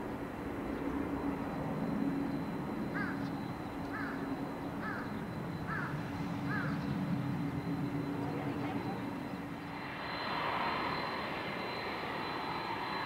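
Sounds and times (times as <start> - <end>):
airliner engines rumbling: 0.0 - 13.0
crow cawing: 3.0 - 3.2, 3.9 - 4.2, 4.8 - 5.1, 5.7 - 6.8.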